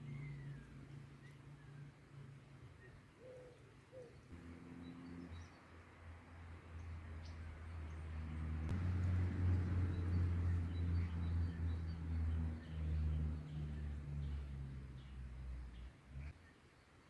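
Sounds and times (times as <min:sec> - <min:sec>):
passing motor vehicle engine drone: 0:04.3 - 0:16.3.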